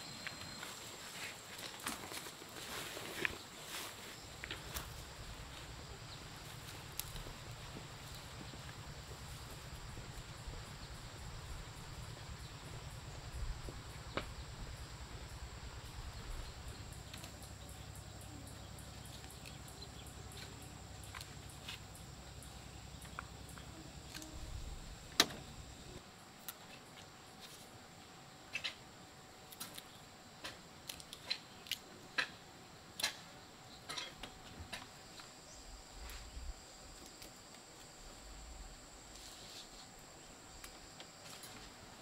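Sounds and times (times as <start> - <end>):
high insect drone: 0.0 - 42.0
crisp snaps and leaf rustles: 6.6 - 7.3.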